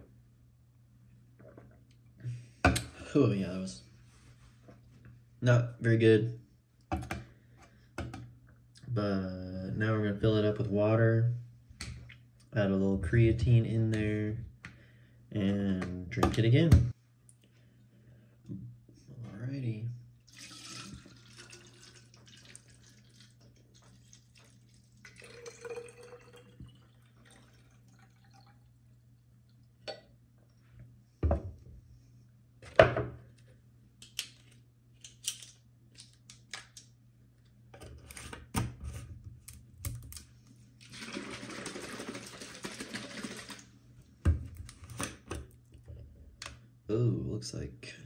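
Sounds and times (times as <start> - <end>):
water poured into plastic bottle: 20.3 - 28.7, 40.8 - 43.7
liquid sloshing in shaken bottle: 40.8 - 43.7.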